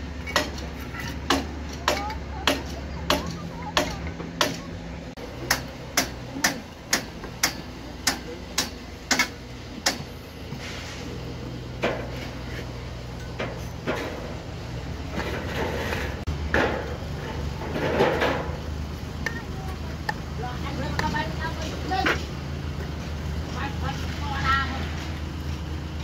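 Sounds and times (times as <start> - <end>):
trowel scraping mortar: 12.0 - 12.9.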